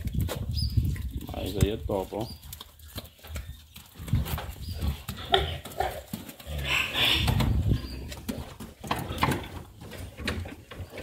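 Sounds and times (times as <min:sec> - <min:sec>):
hooves tapping on concrete: 0:00.0 - 0:11.0
pig grunting: 0:04.1 - 0:08.1.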